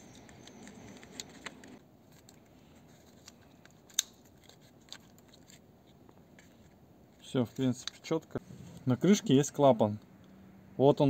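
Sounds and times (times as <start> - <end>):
plastic parts rubbing: 0.0 - 8.8.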